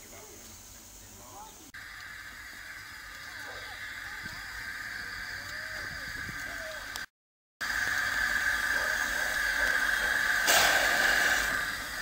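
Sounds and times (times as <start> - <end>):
steam locomotive hissing: 0.0 - 12.0.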